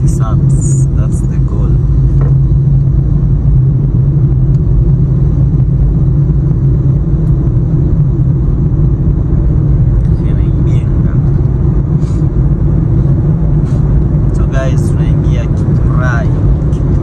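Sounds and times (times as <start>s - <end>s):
car driving on highway: 0.0s - 17.0s.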